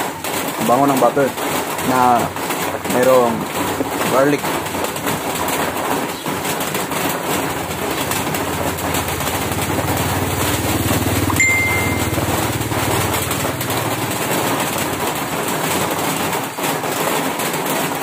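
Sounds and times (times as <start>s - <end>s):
heavy rain on a roof: 0.0s - 18.0s
short high beep: 11.3s - 12.4s.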